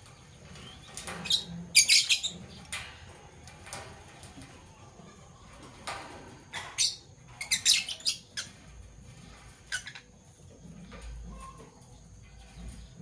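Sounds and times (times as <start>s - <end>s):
lovebird chirping: 6.7s - 8.5s.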